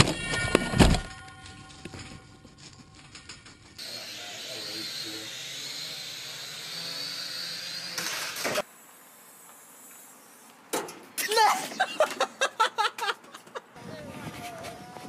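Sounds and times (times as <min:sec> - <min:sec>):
toy drone motors whining: 0:03.8 - 0:10.5.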